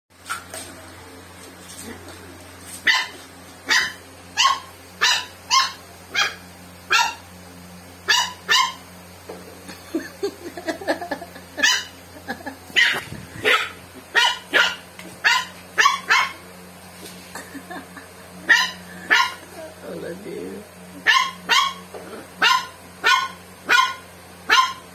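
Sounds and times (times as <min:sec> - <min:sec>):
puppy barking high-pitched: 0:02.8 - 0:07.2, 0:08.0 - 0:08.8, 0:11.6 - 0:12.0, 0:12.7 - 0:16.4, 0:18.5 - 0:19.5, 0:21.0 - 0:24.9.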